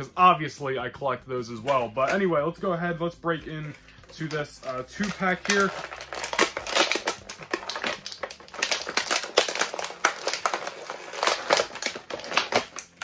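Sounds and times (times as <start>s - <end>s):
plastic packaging crinkling: 3.4s - 13.0s.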